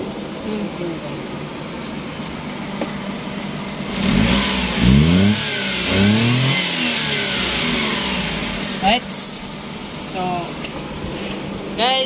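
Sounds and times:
car engine idling and revving: 0.0 - 12.0.

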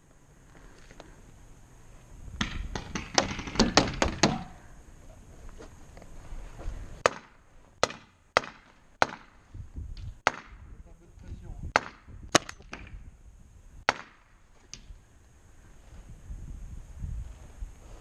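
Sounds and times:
knocks and thuds: 2.4 - 4.5
paintball markers firing: 11.7 - 13.0.

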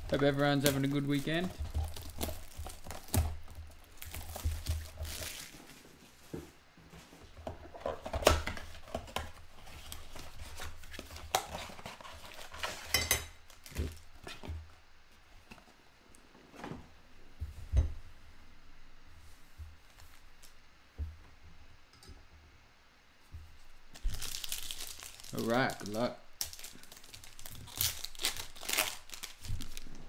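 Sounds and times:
foil wrapper crinkle: 0.0 - 6.0, 8.0 - 14.4, 23.9 - 30.0.

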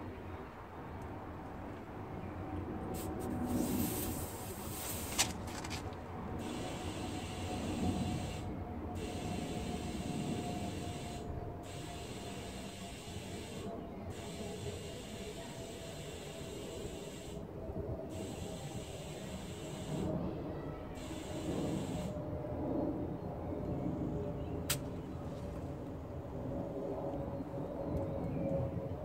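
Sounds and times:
compressed air hissing: 3.0 - 5.5, 6.4 - 17.4, 18.1 - 20.1, 21.0 - 22.2.

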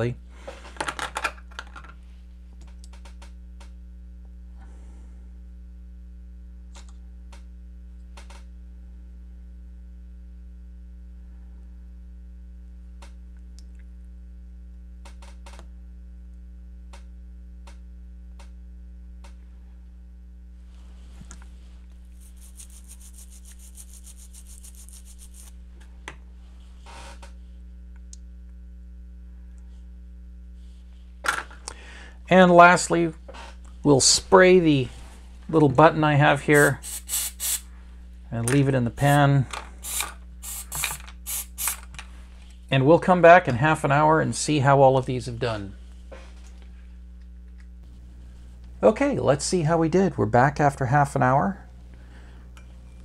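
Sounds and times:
electrical mains hum: 0.0 - 53.0
high hiss: 22.2 - 25.5, 36.4 - 37.7, 39.0 - 41.8.

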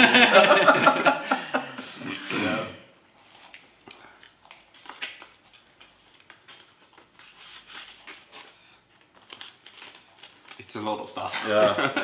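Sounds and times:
paper and plastic rustling: 3.2 - 11.7.

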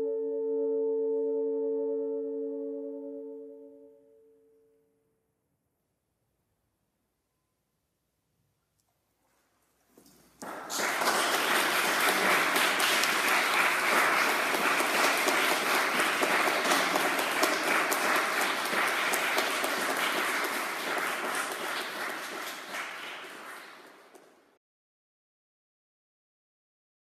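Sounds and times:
audience applauding: 10.4 - 24.5.

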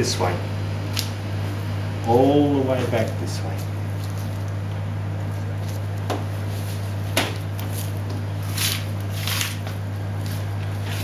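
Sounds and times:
steady low hum: 0.0 - 11.0
knife cutting and scraping meat: 5.2 - 11.0.

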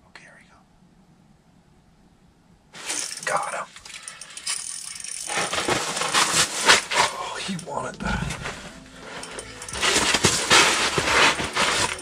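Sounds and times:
clothing and gear rustling: 2.8 - 12.0.

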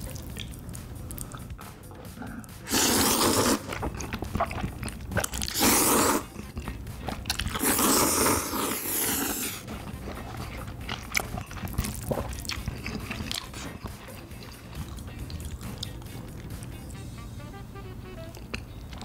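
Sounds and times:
wet chewing: 0.0 - 17.0, 18.2 - 19.0
noodles slurped: 2.2 - 16.6.

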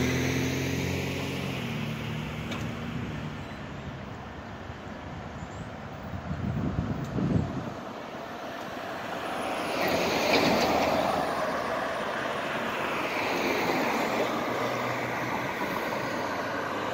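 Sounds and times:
car passing: 0.0 - 16.9
pickup truck driving past: 8.3 - 16.9.

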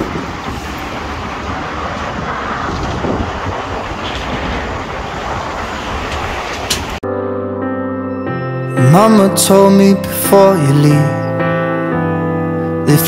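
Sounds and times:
busy road traffic rush: 0.0 - 7.0.

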